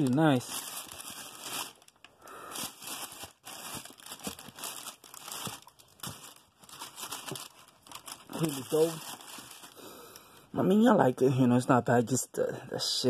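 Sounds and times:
crinkling and rustling: 0.0 - 10.4.

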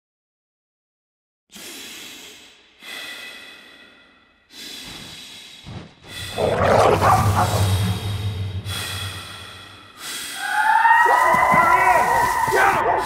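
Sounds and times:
men breathing heavily: 1.6 - 10.6.

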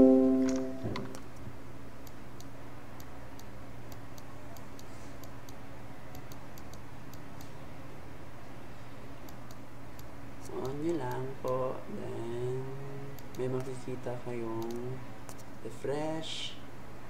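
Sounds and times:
device-connect chime: 0.0 - 1.0
faint hum: 0.0 - 17.0
soft high ticks: 2.0 - 7.5, 9.3 - 11.6, 14.6 - 15.5.

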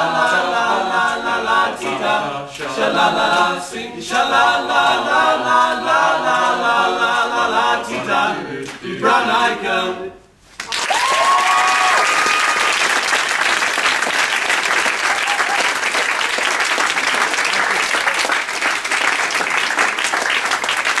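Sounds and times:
audience applauding: 10.6 - 21.0
high cheer: 10.6 - 21.0.

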